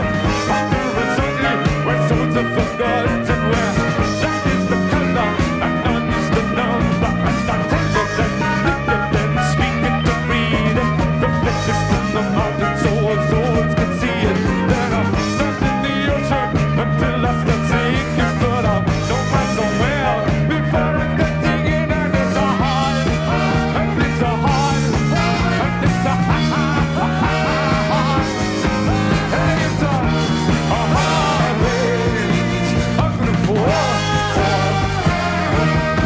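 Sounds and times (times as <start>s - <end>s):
live rock band playing: 0.0s - 36.0s.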